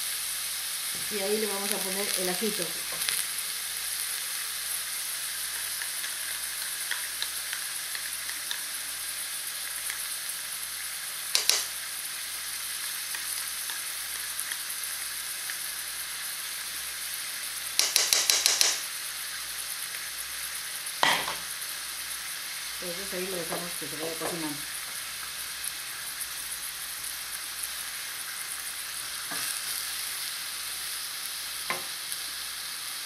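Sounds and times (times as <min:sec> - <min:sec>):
onion sizzling in oil: 0:00.0 - 0:33.0
utensil knocking on pot: 0:17.8 - 0:18.8.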